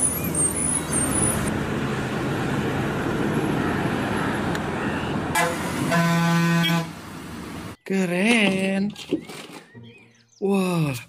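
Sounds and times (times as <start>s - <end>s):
bus engine running: 0.0s - 7.8s
road and traffic noise: 0.0s - 7.9s.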